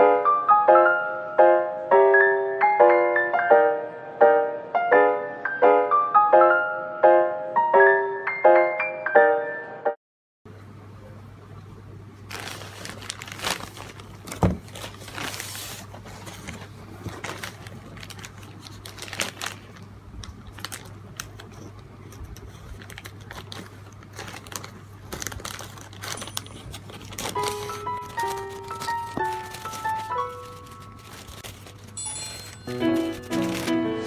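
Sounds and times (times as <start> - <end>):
faint steady hum: 10.5 - 34.0
plastic bag crinkling: 12.3 - 34.0
scissors cutting plastic: 20.2 - 34.0.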